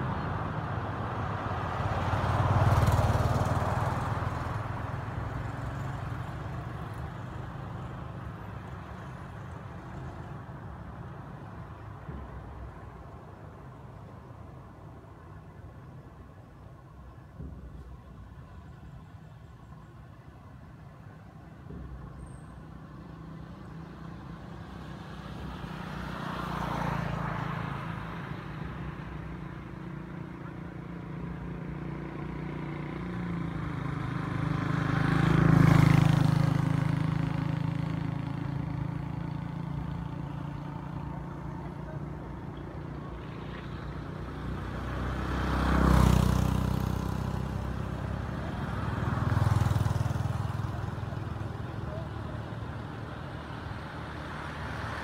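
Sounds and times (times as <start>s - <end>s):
vehicles driving past: 0.0s - 55.0s.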